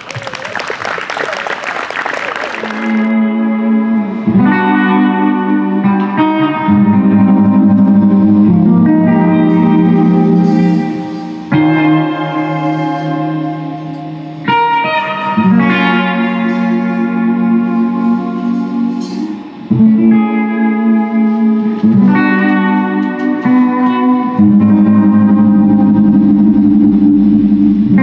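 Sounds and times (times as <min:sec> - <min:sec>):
electric guitar sustained chords: 0:02.4 - 0:28.0
jazz band playing: 0:04.2 - 0:28.0.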